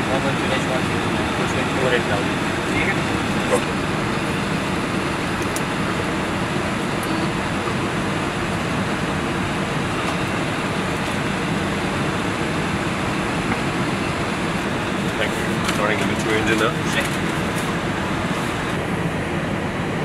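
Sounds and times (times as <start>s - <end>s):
air-conditioning airflow: 0.0s - 20.0s
equipment fans humming: 0.0s - 20.0s.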